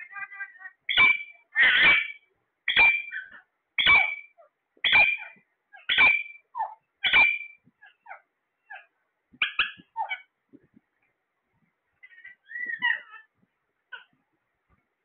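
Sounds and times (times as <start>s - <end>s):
parakeet harsh calls: 0.0s - 10.3s, 12.0s - 13.3s
parakeet soft chirps: 0.1s - 10.3s, 12.0s - 13.3s.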